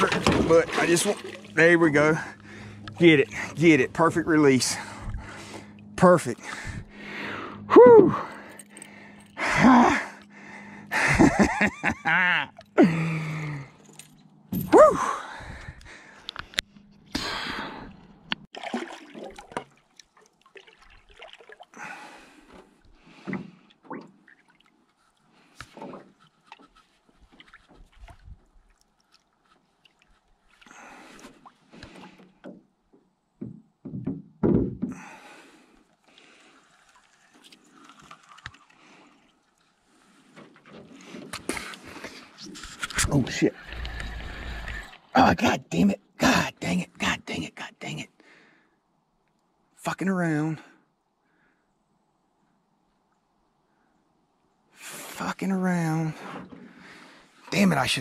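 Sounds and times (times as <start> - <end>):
paddle splashing through water: 0.0 - 3.6, 18.6 - 32.2, 35.9 - 42.8
water dripping: 18.6 - 21.8, 35.9 - 39.7
wood knocking on boat hull: 33.4 - 34.9.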